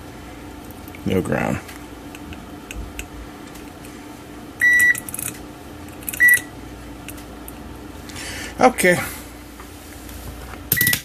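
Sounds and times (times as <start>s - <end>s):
multimeter continuity beeps: 4.6s - 5.0s, 6.2s - 6.5s.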